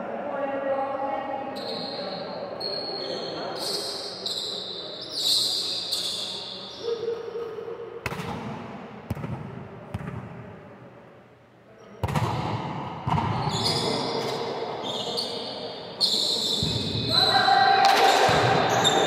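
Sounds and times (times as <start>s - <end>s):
volleyballs thudding in gym: 8.0s - 10.7s, 12.0s - 14.5s, 16.6s - 19.0s.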